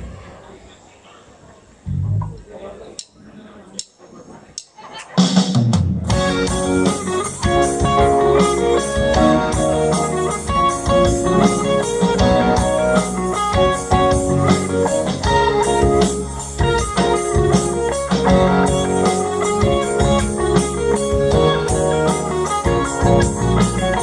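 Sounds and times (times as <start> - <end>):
bass guitar: 1.8 - 2.5, 5.7 - 24.0
drum kit beat: 5.1 - 24.0
keyboard: 5.2 - 24.0
guitars: 6.1 - 24.0.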